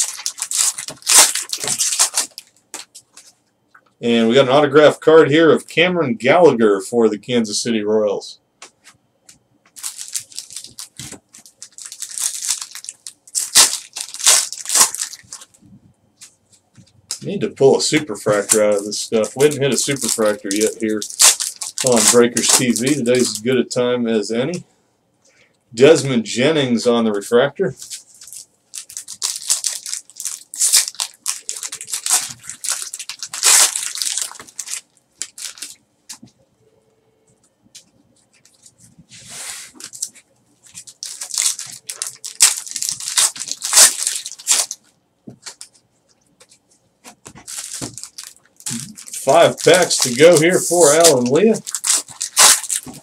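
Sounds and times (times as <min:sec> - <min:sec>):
foil wrapper tearing and crinkling: 0:00.0 - 0:02.9, 0:09.8 - 0:15.5, 0:17.9 - 0:23.5, 0:27.8 - 0:35.8, 0:39.8 - 0:45.7, 0:47.4 - 0:53.0.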